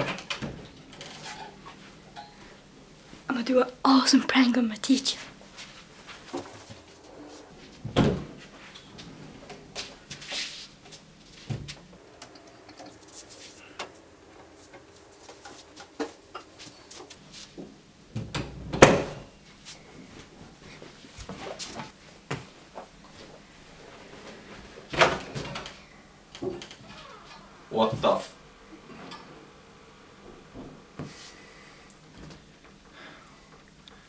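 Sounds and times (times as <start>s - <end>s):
faint rustles: 5.2s - 17.6s.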